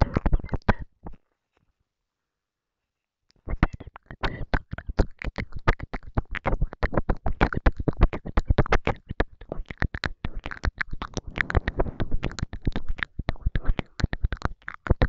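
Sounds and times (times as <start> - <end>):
tongue and lip clicks: 0.0 - 1.2, 3.3 - 15.0.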